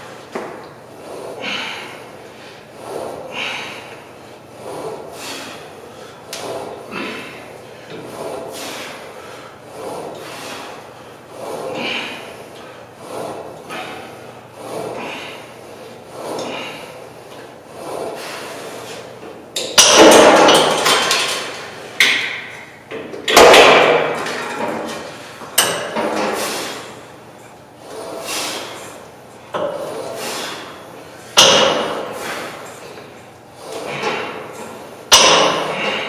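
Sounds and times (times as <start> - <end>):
weight plates clanking: 19.6 - 26.9, 33.6 - 36.0.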